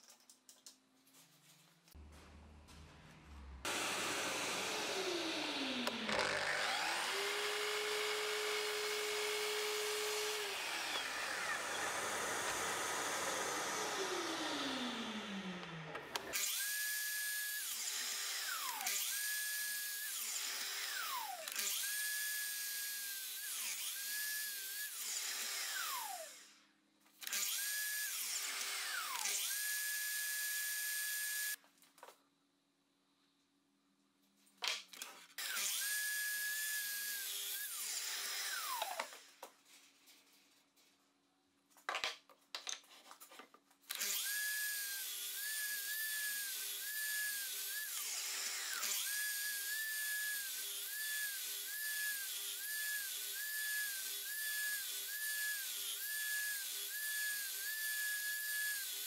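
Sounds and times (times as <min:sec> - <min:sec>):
mitre saw cutting wood: 0:03.7 - 0:26.4, 0:27.3 - 0:31.6, 0:35.4 - 0:39.3, 0:43.9 - 0:59.0
saw clicks: 0:05.0 - 0:07.0.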